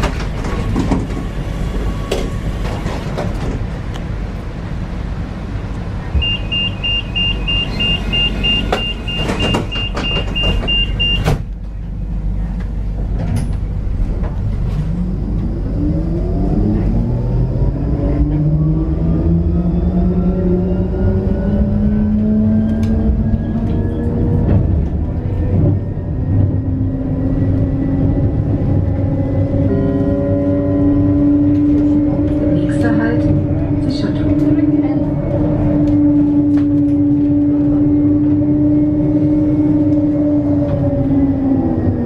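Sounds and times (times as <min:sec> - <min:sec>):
tram motor whine: 0:00.0 - 0:42.0
tram door warning beeps: 0:06.1 - 0:11.4
doors closing knock: 0:08.6 - 0:11.5.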